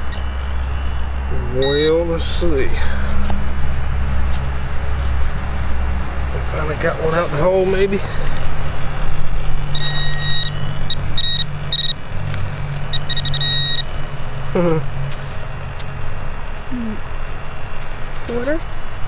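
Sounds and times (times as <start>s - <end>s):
metal detector beeping: 0.0s - 2.6s, 9.6s - 12.0s, 12.8s - 14.0s
steady low hum: 0.0s - 19.0s.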